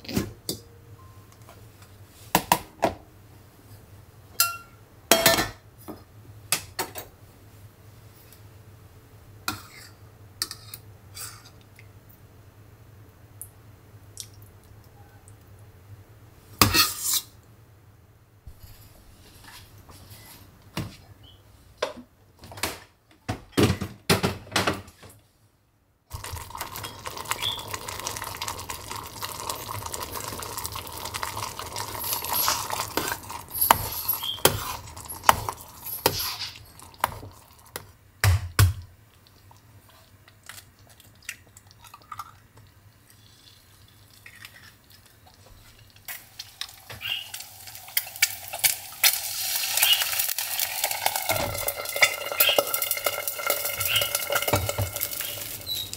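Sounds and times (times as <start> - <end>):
pot and utensils clinking: 4.4 - 5.6, 26.2 - 37.9, 46.4 - 55.9
steady hiss and scraping: 18.5 - 20.6, 30.1 - 37.6
egg sizzling in frying pan: 26.1 - 38.0, 46.0 - 55.9.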